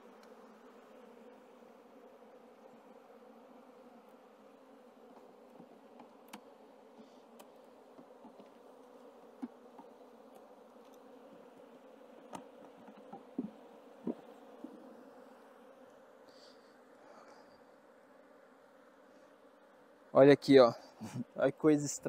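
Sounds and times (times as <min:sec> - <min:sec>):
honeybee colony humming: 0:00.0 - 0:22.0
hive tool prying wooden frames: 0:05.1 - 0:11.5, 0:12.1 - 0:14.7.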